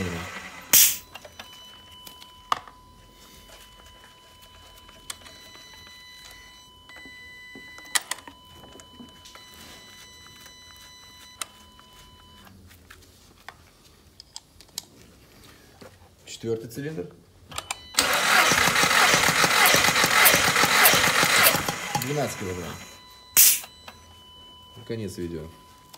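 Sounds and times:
faint steady high tone: 0.0 - 12.6, 21.9 - 25.9.

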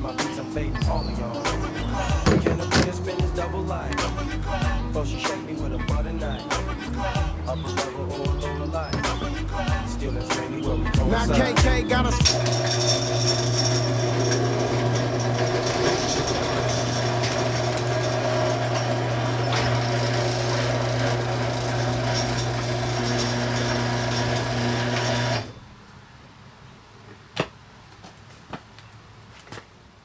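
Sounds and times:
garage door opener motor hum: 12.2 - 25.6.

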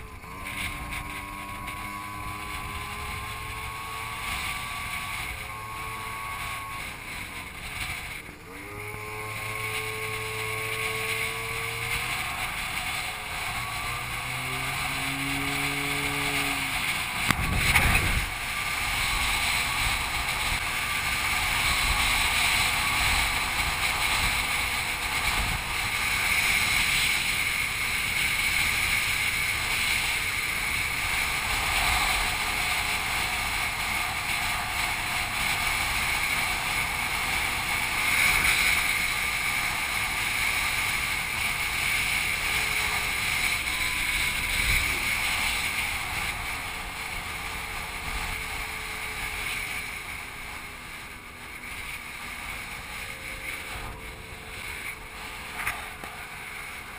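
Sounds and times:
scooter engine running: 0.0 - 56.9
wind on microphone: 0.0 - 56.9.

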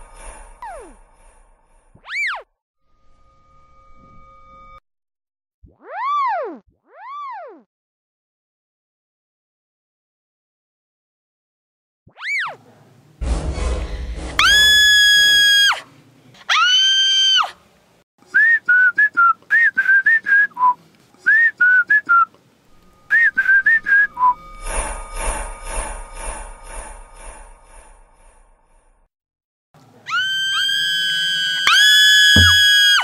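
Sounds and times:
cartoon whistles: 2.0 - 2.5, 5.8 - 7.6, 30.2 - 33.0
chirping whistle notes: 22.7 - 24.6.

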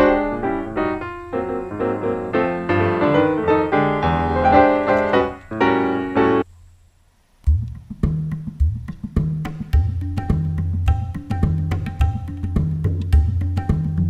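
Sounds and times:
background piano music: 0.0 - 6.5.

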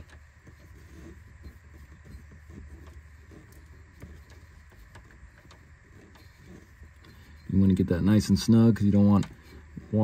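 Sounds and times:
handling noises: 0.0 - 10.0
steady low hum: 0.0 - 10.0.

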